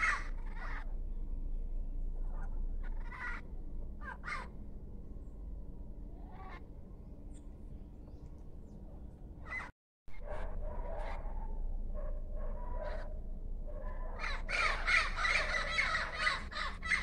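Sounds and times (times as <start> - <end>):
parrots squawking: 0.0 - 0.8, 2.3 - 3.4, 4.0 - 4.5, 14.2 - 17.0.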